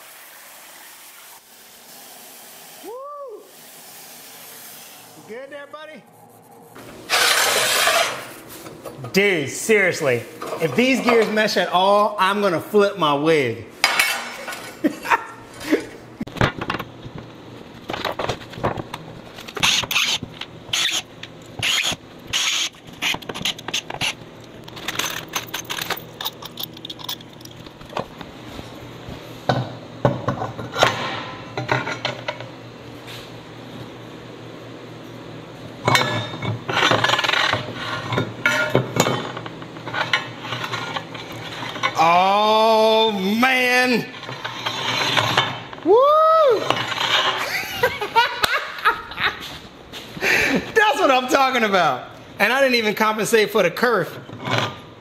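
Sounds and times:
metal plates clinking and scraping: 6.8s - 8.4s, 22.4s - 28.0s, 35.9s - 42.0s, 44.1s - 45.8s, 46.6s - 47.9s.

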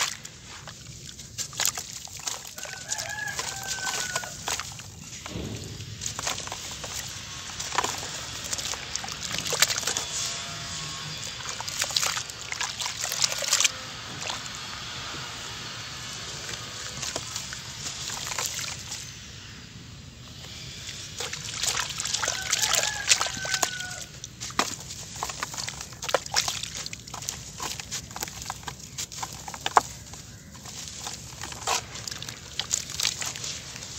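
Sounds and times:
water sloshing and dribbling: 0.0s - 19.3s, 20.1s - 33.9s
wet cement chunks crumbling: 0.0s - 19.3s, 20.3s - 33.9s.

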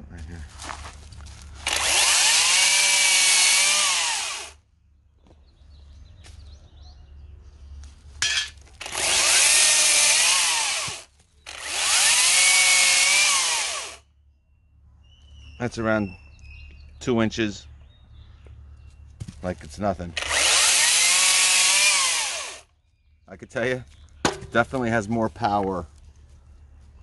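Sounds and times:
chainsaw cutting branch: 1.6s - 4.6s, 8.8s - 14.0s, 20.2s - 22.6s.

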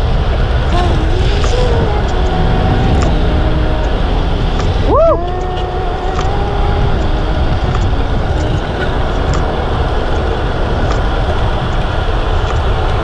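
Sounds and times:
wind rumbling over microphone: 0.0s - 13.0s
faint light ticks: 12.4s - 12.7s.

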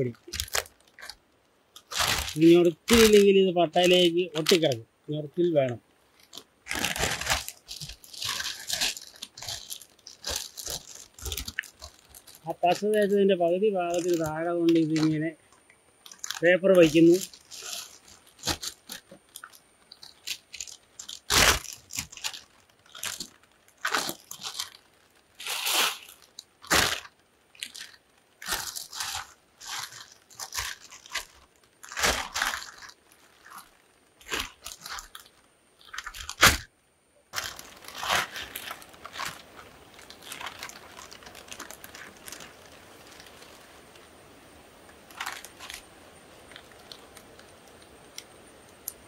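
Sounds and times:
plastic sheet crinkling: 0.0s - 36.7s, 37.3s - 44.1s, 44.8s - 49.0s
faint steady hiss: 0.0s - 49.0s.

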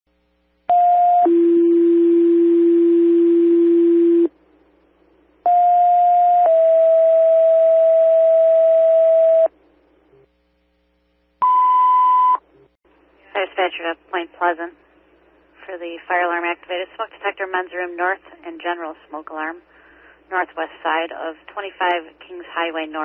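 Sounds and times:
radio hiss: 13.1s - 23.0s.

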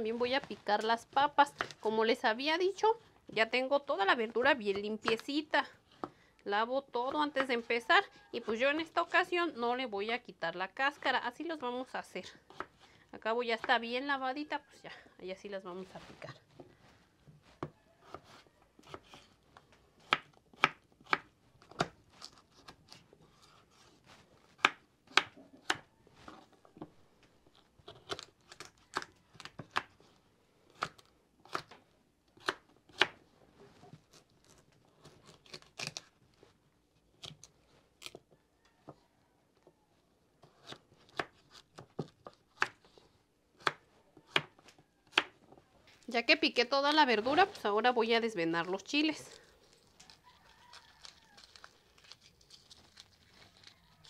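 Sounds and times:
knife chopping on wooden board: 20.0s - 22.0s.

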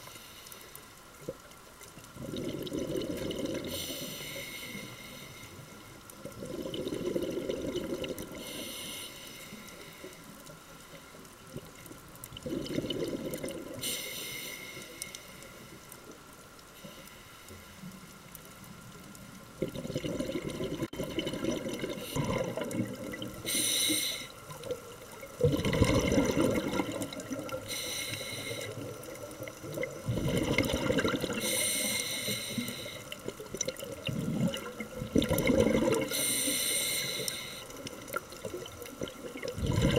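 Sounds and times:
diver inhaling through regulator hiss: 0.0s - 0.8s, 3.6s - 5.9s, 8.4s - 10.3s, 13.8s - 15.8s, 23.4s - 24.5s, 27.6s - 29.0s, 31.4s - 33.2s, 36.0s - 37.8s
exhaled air bubbling underwater: 1.2s - 17.1s, 17.9s - 39.9s.

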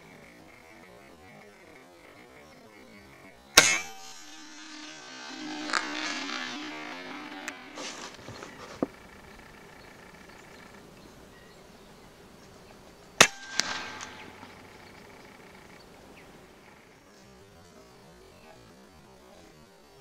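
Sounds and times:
pellet striking crack: 3.6s - 8.9s, 13.2s - 15.4s
air rifle shot: 13.2s - 15.6s.

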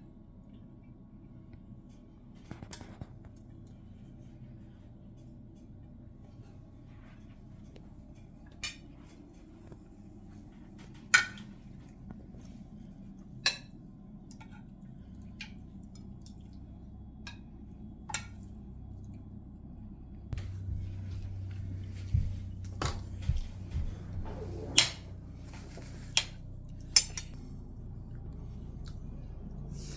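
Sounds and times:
low room hum: 0.0s - 29.9s
metal spoons clinking on plates: 26.8s - 27.4s.

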